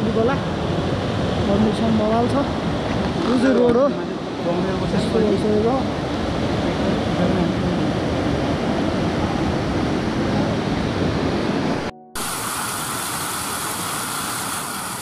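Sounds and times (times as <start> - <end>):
floodwater rushing: 10.3 - 15.0.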